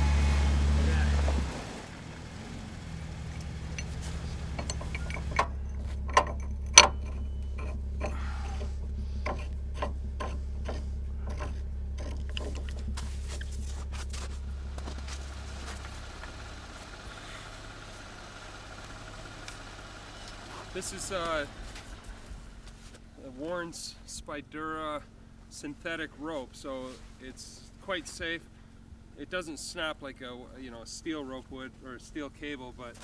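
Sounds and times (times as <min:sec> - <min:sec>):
vehicle engine idling: 0:00.0 - 0:33.0
metal hardware clicking and clanking: 0:03.2 - 0:12.9.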